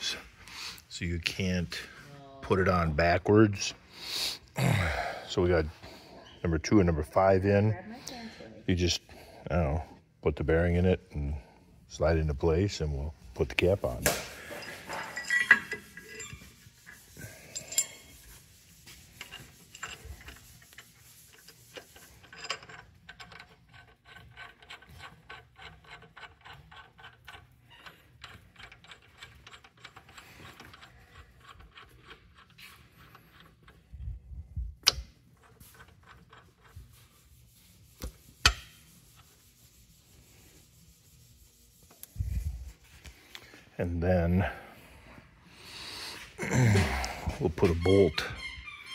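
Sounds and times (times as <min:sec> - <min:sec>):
metal clinking and rubbing: 0:12.0 - 0:34.2, 0:35.0 - 0:43.7, 0:47.2 - 0:48.9.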